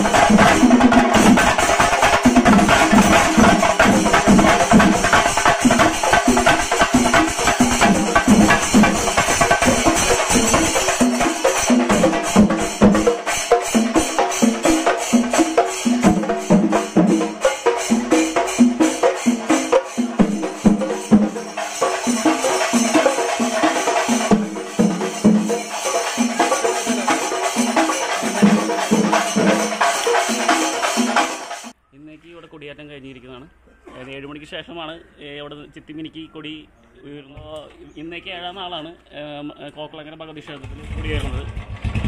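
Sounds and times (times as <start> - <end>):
drums beaten with sticks: 0.0 - 31.7
cymbals clashing: 0.0 - 31.8.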